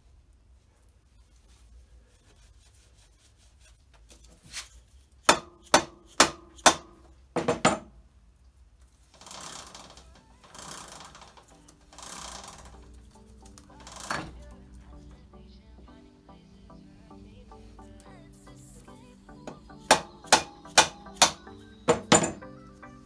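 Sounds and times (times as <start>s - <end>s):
sharp knocks: 5.3s - 7.9s.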